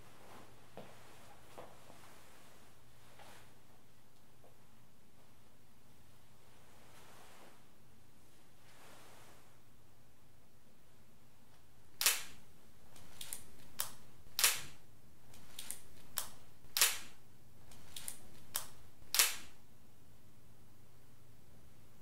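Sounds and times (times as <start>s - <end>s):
camera shutter clicking: 12.0s - 12.4s, 13.2s - 14.7s, 16.8s - 17.1s, 17.9s - 19.5s.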